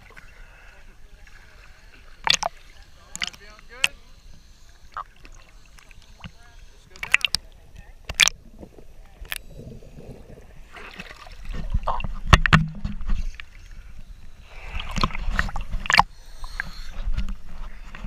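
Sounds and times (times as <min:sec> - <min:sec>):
water sloshing and splashing: 0:01.1 - 0:04.1, 0:04.9 - 0:13.8, 0:14.5 - 0:16.1
water slapping camera housing: 0:02.2 - 0:02.5, 0:08.1 - 0:08.4.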